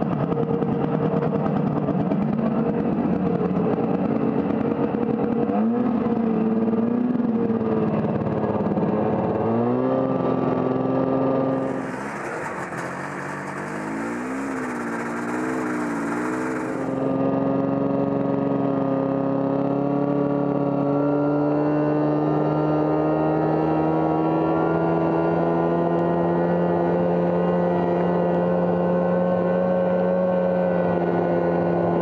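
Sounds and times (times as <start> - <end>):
snowmobile engine running: 11.4 - 19.5
rushing hiss: 11.6 - 17.0.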